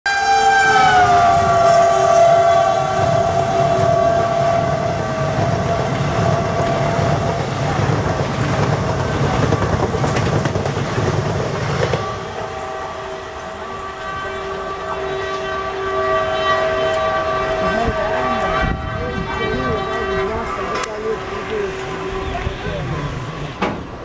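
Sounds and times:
train horn blast: 0.0 - 24.0
train coaches rumbling past: 0.1 - 24.0.

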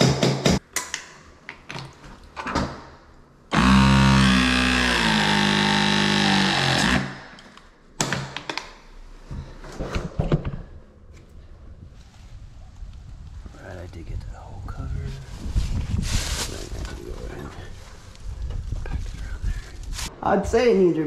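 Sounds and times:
tubing cutter motor: 3.5 - 7.4.

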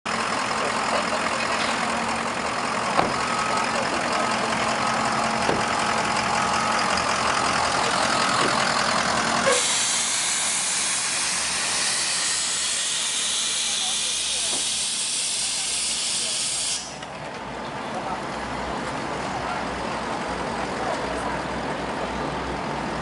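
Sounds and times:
engine idling hum: 0.1 - 23.0.

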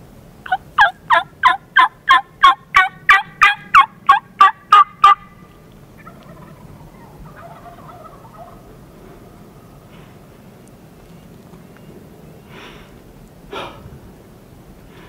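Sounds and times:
turkey yelps: 0.5 - 9.4.

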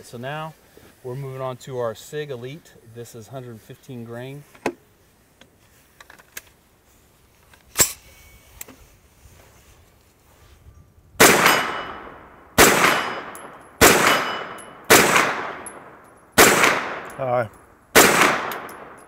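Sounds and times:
gunshots with long echo: 11.2 - 19.0
sharp click: 18.4 - 19.0.

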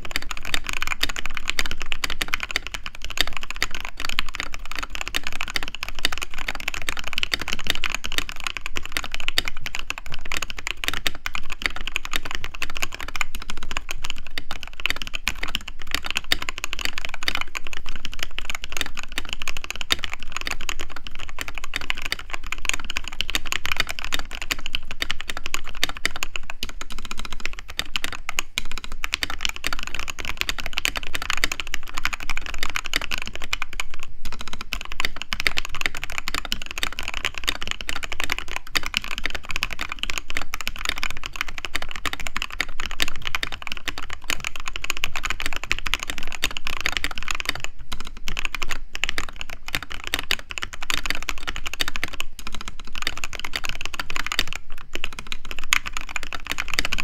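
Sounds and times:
mechanical keyboard typing: 0.0 - 57.0.

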